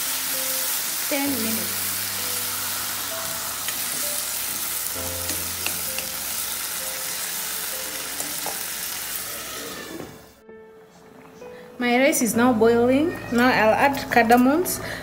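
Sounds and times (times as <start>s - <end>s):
meat sizzling in a frying pan: 0.0s - 9.8s.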